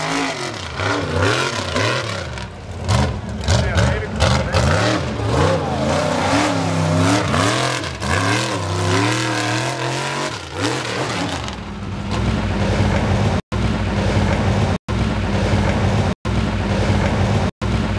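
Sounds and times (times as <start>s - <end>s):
tires throwing dirt: 0.0s - 17.9s
truck engine revving hard: 0.0s - 17.9s.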